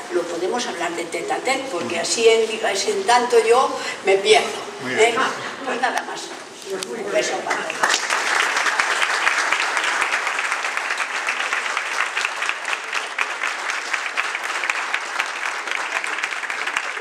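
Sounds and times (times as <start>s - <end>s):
crowd applauding: 7.4s - 17.0s.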